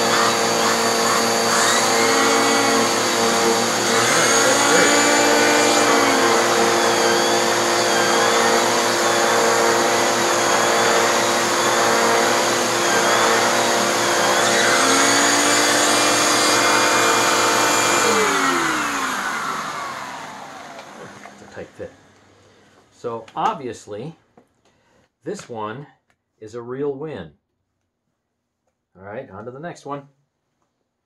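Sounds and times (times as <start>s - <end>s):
vacuum cleaner with turbo brush: 0.0s - 22.2s
vacuum motor winding down: 0.0s - 22.3s.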